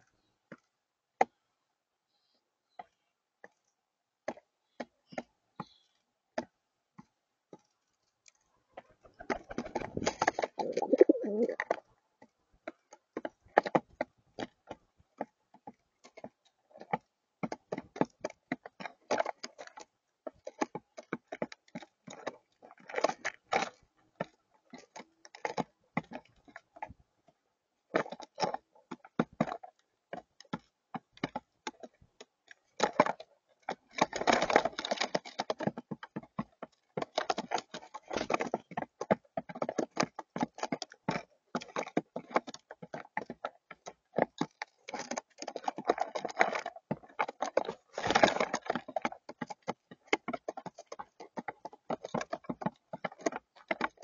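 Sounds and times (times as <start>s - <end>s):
pigeons pecking on tabletop: 2.2s - 54.0s.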